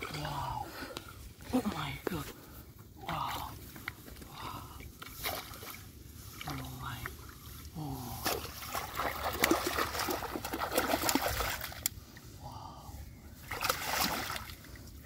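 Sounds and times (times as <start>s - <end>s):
muddy water splashing: 0.0s - 12.4s, 13.4s - 15.0s
fish thrashing in water: 8.2s - 11.9s, 13.4s - 14.8s.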